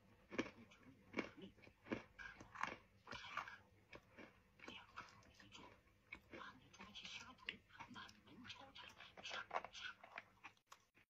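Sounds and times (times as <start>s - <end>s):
crunchy chewing: 0.0s - 11.0s.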